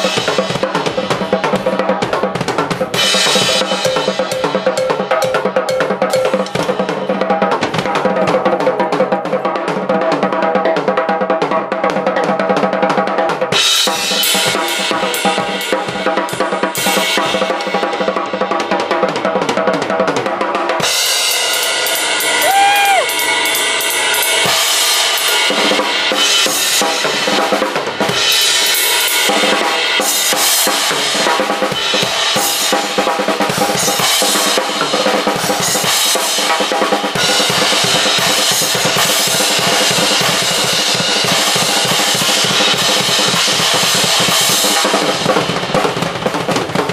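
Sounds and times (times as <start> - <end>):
drum kit solo: 0.0 - 46.9
cymbals ringing: 3.0 - 7.2, 21.0 - 27.3.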